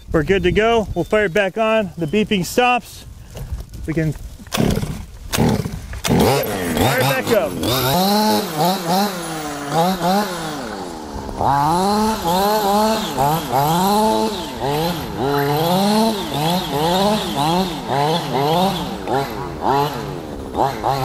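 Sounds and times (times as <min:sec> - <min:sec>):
model truck engine revving: 0:04.6 - 0:21.0.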